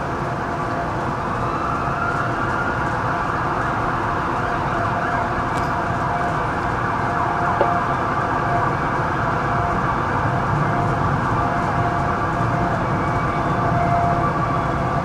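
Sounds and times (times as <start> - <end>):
distant sirens wailing: 0.0 - 15.0
street din: 4.9 - 8.3.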